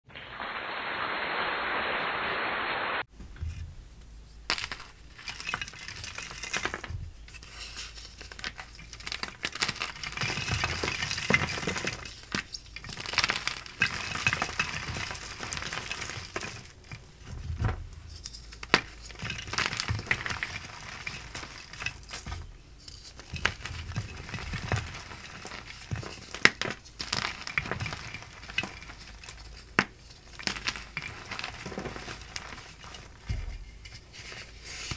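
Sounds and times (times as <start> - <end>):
steady hiss: 0.1 - 3.1
chalk crunching and crackling: 18.1 - 34.9.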